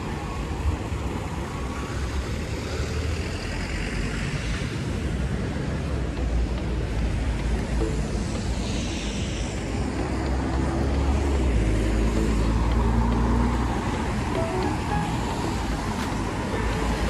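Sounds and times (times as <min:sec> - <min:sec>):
tyre hiss on wet road: 0:00.0 - 0:17.0.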